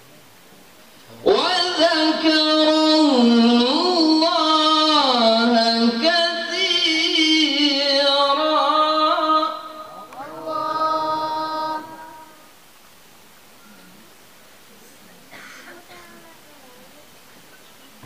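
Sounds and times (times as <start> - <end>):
man reciting melodically into microphone: 1.1 - 12.5.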